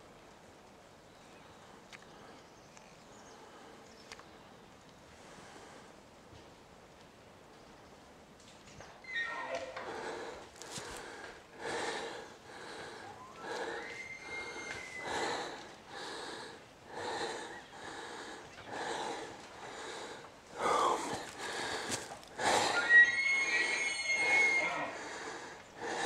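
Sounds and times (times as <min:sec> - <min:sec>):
heavy breathing: 0:09.8 - 0:22.9, 0:23.6 - 0:26.0
elk bugling: 0:12.8 - 0:15.7, 0:22.4 - 0:26.0.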